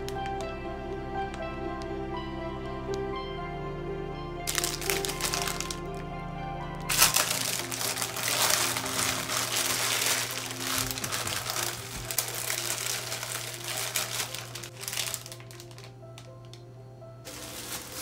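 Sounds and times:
plastic wrapping crinkling: 0:04.5 - 0:06.0, 0:06.9 - 0:16.6, 0:17.2 - 0:18.0.

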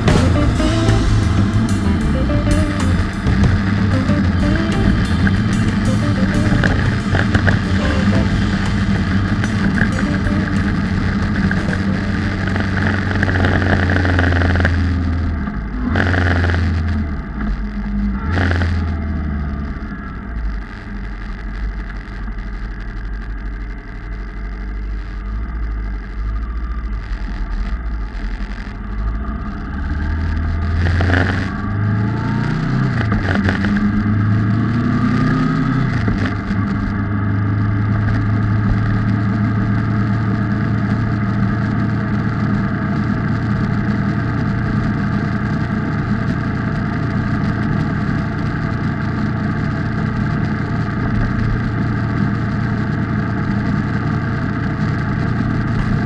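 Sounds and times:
motorcycle engine accelerating: 0:00.0 - 0:17.3, 0:28.8 - 0:56.0.

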